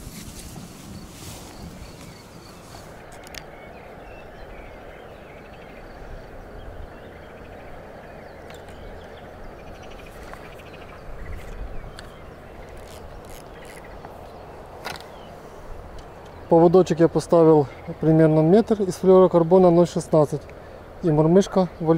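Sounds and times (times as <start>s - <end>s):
wind rumble on microphone: 0.0s - 16.5s
small birds chirping: 0.0s - 21.9s.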